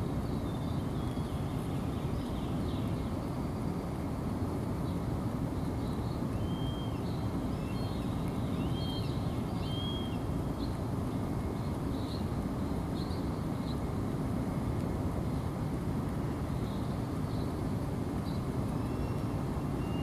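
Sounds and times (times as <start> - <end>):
low rumble of urban noise: 0.0 - 20.0
faint high-pitched bird calls: 5.8 - 10.8, 18.3 - 20.0.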